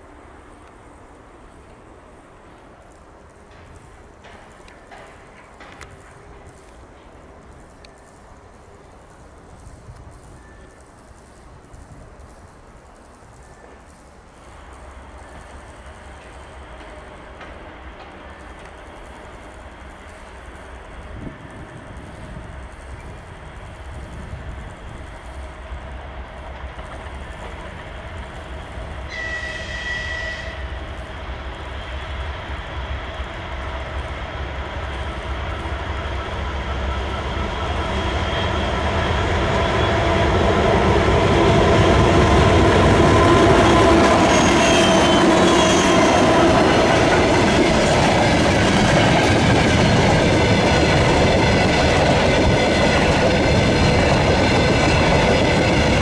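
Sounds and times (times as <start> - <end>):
diesel locomotive engine: 0.0 - 56.0
short high train horn: 29.1 - 30.8, 43.0 - 46.3.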